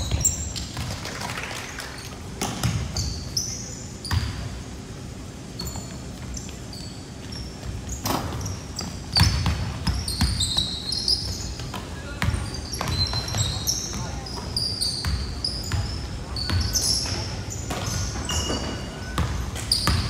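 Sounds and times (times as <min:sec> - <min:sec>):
sneaker squeaks: 0:00.0 - 0:00.9, 0:02.0 - 0:04.7, 0:05.3 - 0:20.0
basketball bouncing on wooden floor: 0:00.0 - 0:01.0, 0:07.6 - 0:14.1, 0:17.7 - 0:20.0.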